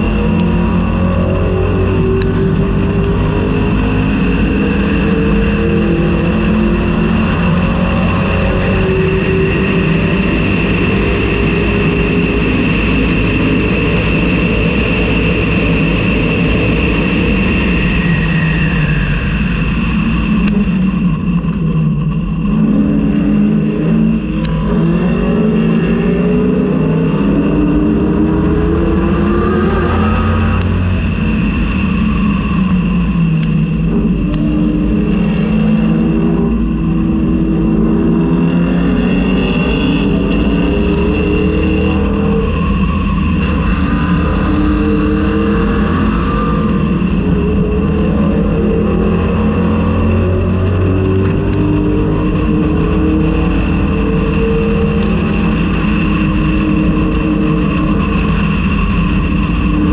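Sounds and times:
race car engine revving: 0.0s - 59.9s.

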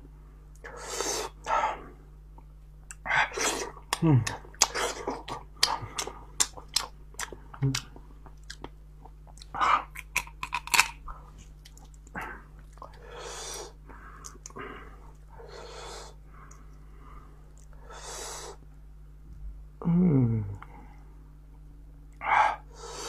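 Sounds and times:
chewing: 3.9s - 13.0s
snail shells cracking: 10.0s - 11.0s.

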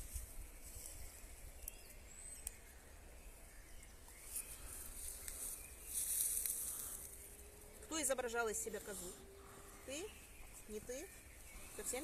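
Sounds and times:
faint bird chirps: 0.0s - 12.0s
rustling hiss: 4.2s - 12.0s.

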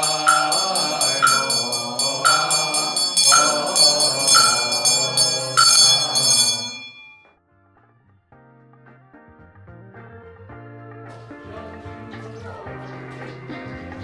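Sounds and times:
voices chanting: 0.0s - 7.0s
hand bell ringing: 0.0s - 7.2s.

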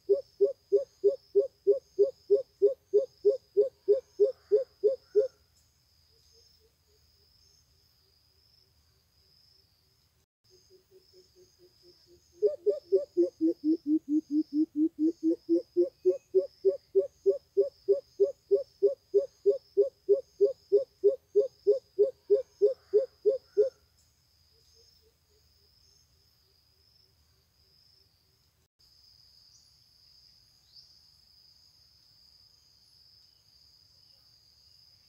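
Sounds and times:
coucal deep hooting calls: 0.1s - 5.3s, 12.4s - 23.8s.

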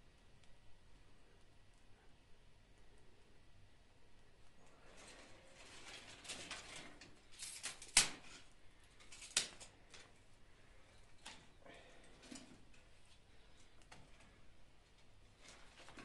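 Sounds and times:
twigs rustling: 4.8s - 10.1s
twigs snapping: 7.4s - 8.4s, 9.0s - 10.0s.

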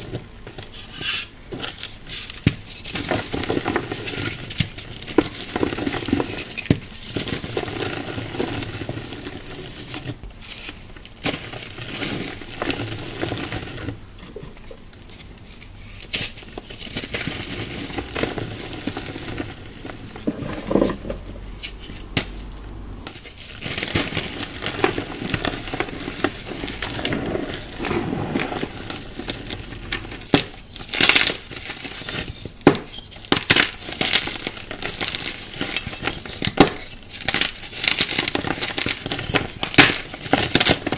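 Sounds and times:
hands crumbling chalky blocks: 23.1s - 40.9s.

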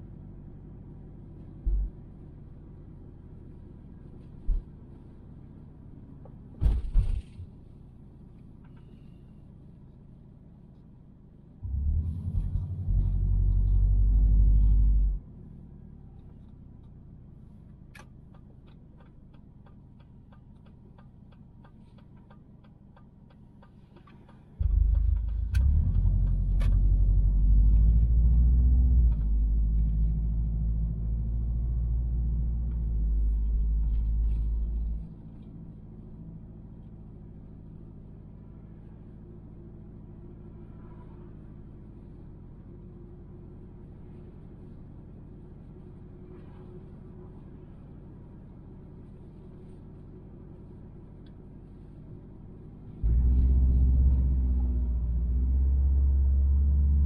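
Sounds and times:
car cabin road and engine rumble: 0.0s - 57.0s.

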